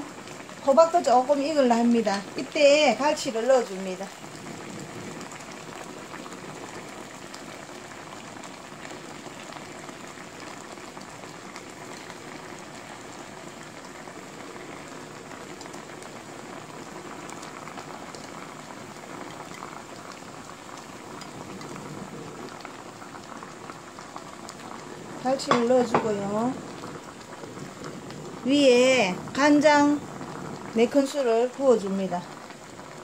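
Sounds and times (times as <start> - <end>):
water bubbling in a pan: 0.0 - 33.0.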